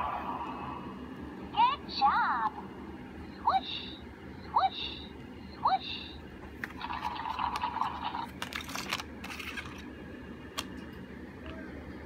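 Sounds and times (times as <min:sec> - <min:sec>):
card sliding and rustling: 0:08.3 - 0:09.8.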